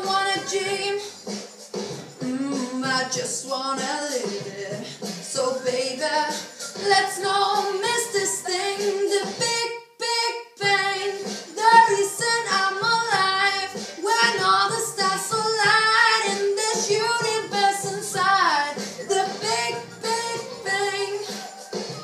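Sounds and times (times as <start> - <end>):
girl singing a pop song: 0.0 - 22.0.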